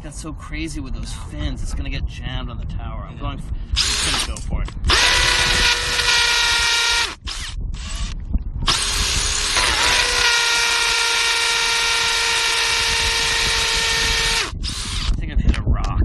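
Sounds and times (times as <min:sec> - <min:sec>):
power drill boring into concrete: 0:03.8 - 0:15.2.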